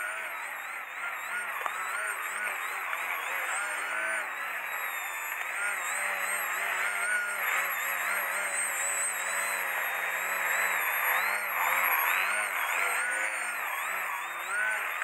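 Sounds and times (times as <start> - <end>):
electric motor and propeller whining: 0.0 - 15.0.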